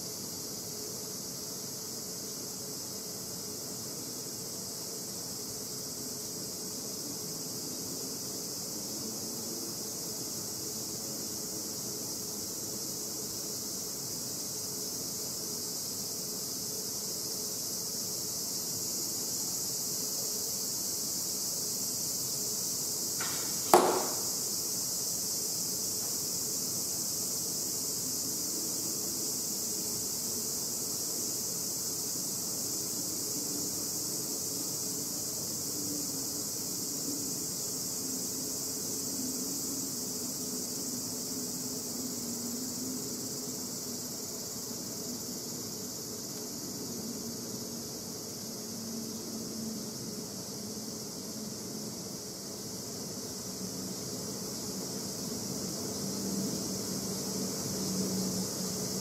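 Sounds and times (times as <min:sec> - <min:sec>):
cicadas droning: 0:00.0 - 0:59.0
arrow striking paper target: 0:23.2 - 0:24.4.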